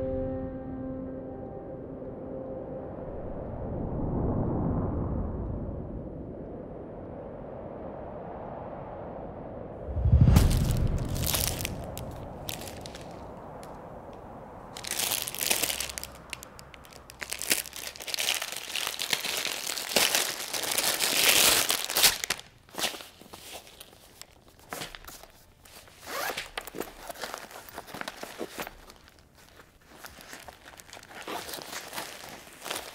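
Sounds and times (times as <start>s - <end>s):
plastic wrapping crinkling and tearing: 10.4s - 32.9s
zipper opening: 25.8s - 29.2s, 29.9s - 32.9s.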